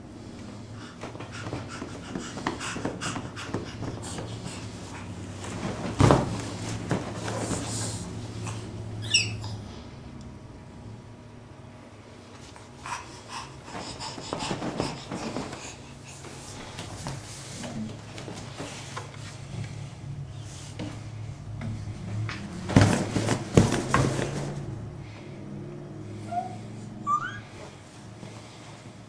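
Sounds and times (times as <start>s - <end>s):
baby laughing and squealing: 9.0s - 9.6s, 26.3s - 27.6s.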